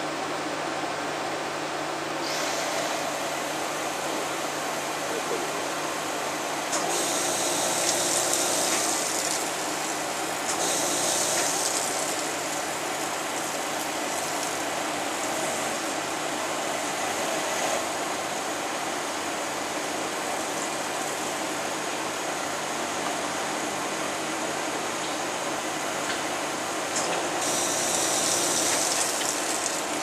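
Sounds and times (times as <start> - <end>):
machine running: 2.2 - 23.0, 26.8 - 30.0.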